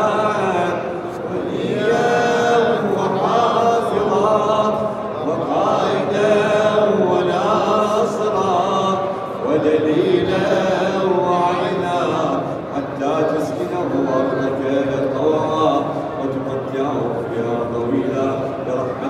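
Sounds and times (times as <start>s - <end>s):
men chanting together: 0.0s - 16.6s.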